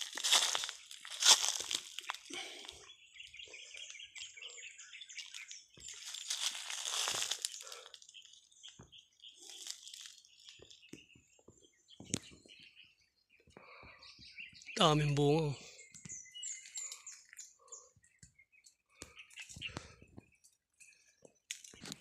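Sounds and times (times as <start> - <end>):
footsteps crunching dry leaves: 0.0 - 2.8, 5.2 - 8.1, 9.4 - 10.6
birds chirping faintly: 0.0 - 22.0.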